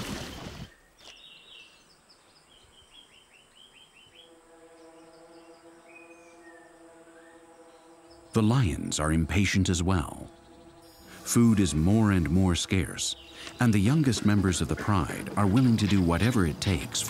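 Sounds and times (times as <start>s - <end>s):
loud splashing water: 0.0s - 0.7s
bird chirps: 0.7s - 16.6s
music score: 4.3s - 17.0s
soft held musical drone: 4.3s - 17.0s.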